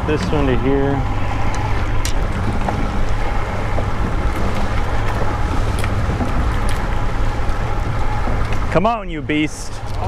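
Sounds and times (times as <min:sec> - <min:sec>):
outboard motor running: 0:00.0 - 0:10.0
wind buffeting microphone: 0:00.0 - 0:10.0
water rushing past hull: 0:01.0 - 0:10.0.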